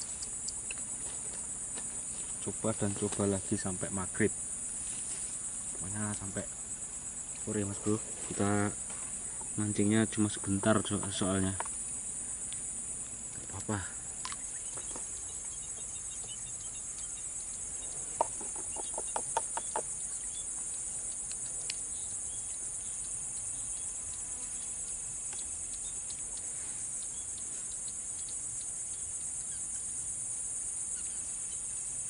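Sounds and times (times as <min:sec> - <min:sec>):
crickets buzzing: 0:00.0 - 0:32.0.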